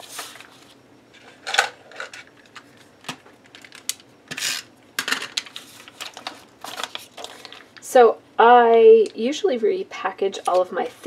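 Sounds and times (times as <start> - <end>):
plastic and paper rustling: 0.0 - 4.4, 5.0 - 7.8, 10.4 - 11.0.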